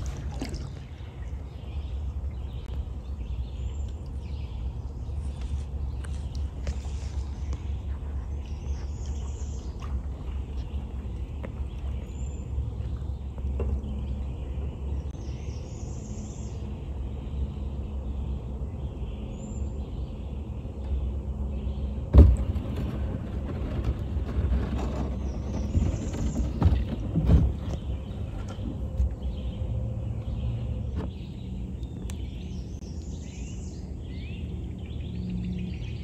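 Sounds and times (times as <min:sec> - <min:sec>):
water splashes: 0:00.0 - 0:02.9, 0:08.4 - 0:14.3
steady low rumble: 0:00.0 - 0:36.0
paddle knocking on hull: 0:22.1 - 0:29.0.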